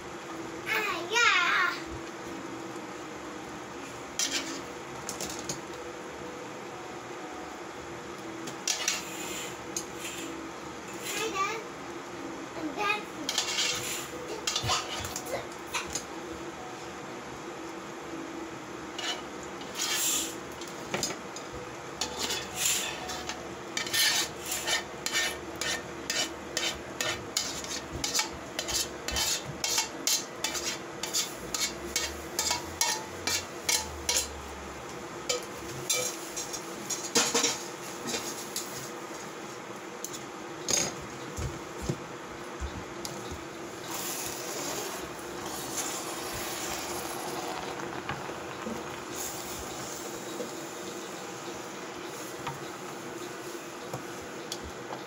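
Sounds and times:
frying sizzle: 0.0 - 6.1, 7.0 - 55.0
utensil scraping a pan: 4.2 - 4.7, 13.3 - 15.1, 19.0 - 20.4, 22.0 - 34.4.

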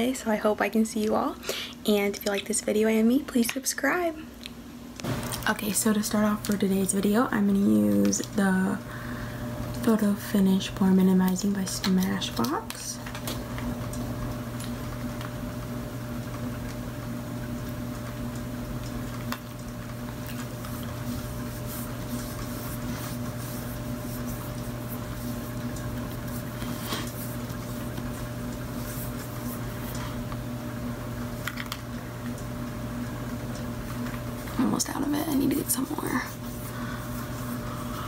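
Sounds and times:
low electrical hum: 0.0 - 38.0.

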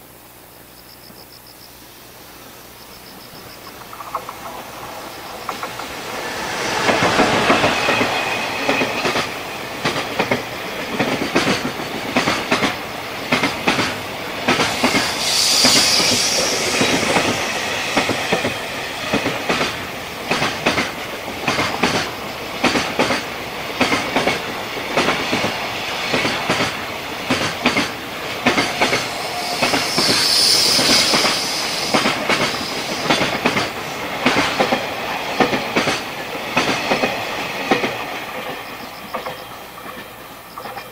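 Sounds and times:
freight train rumble: 2.0 - 40.9
clickety-clack of wheels on rail joints: 3.4 - 40.9
high-pitched wheel squeal: 5.1 - 9.6, 14.8 - 19.1, 28.8 - 32.0.

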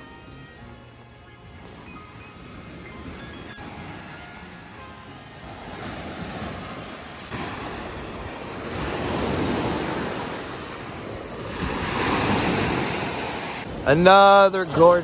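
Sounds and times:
waves washing on sandy shore: 3.4 - 15.0.

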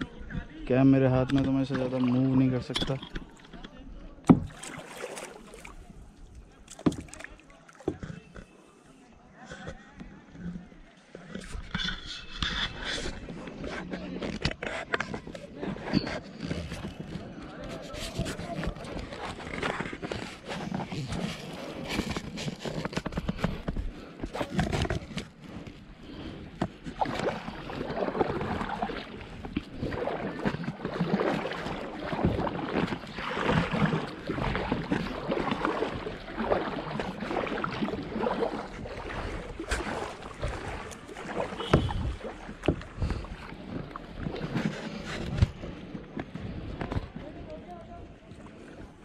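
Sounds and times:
paddle strokes splashing in water: 0.9 - 8.7, 10.4 - 49.0.

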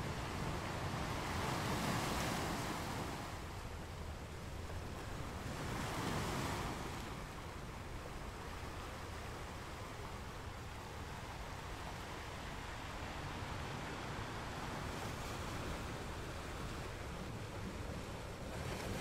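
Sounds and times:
waves crashing: 0.0 - 3.8.

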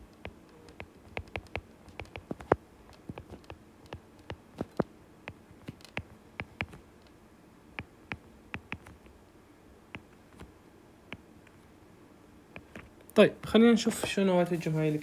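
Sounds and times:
stylus tapping on glass screen: 0.2 - 6.8, 7.8 - 9.0.

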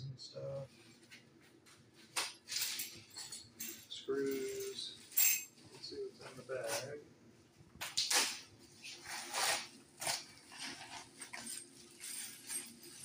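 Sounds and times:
plastic bag of screws handled: 9.2 - 13.0.

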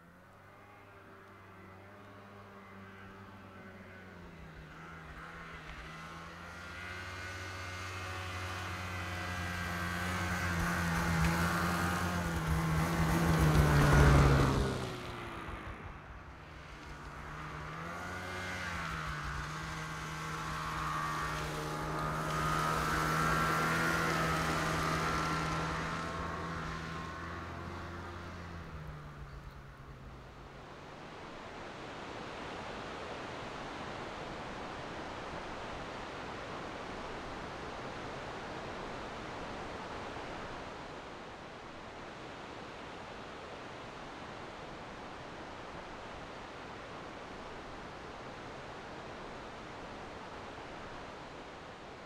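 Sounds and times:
vehicle engine running: 0.0 - 31.4.

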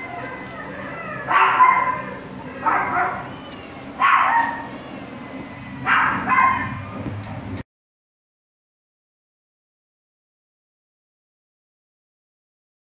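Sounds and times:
puppies whining and yipping: 0.0 - 7.0
low steady hum: 0.0 - 7.6.

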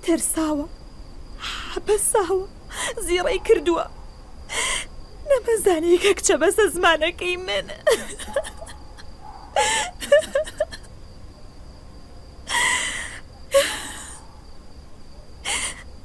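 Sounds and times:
elderly woman crying: 1.4 - 3.8, 4.5 - 4.9, 7.5 - 10.9, 12.5 - 14.2, 15.4 - 16.0.

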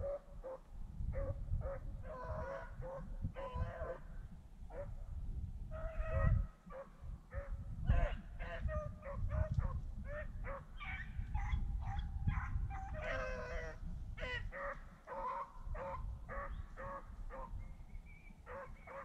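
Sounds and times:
dogs yelping: 1.2 - 4.0, 5.9 - 17.5, 18.4 - 19.0.

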